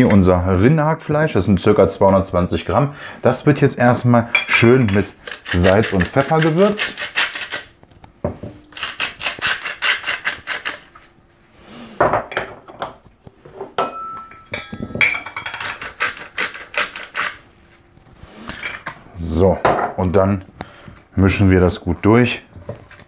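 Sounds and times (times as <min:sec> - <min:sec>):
pepper mill grinding clicks: 0:08.7 - 0:11.2.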